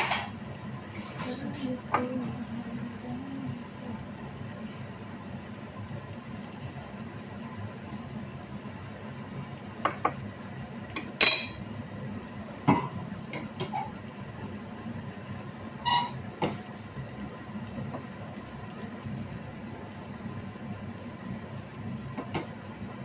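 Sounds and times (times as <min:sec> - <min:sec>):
steady low hum: 0:00.0 - 0:23.0
utensils clinking on frying pan: 0:11.0 - 0:11.6.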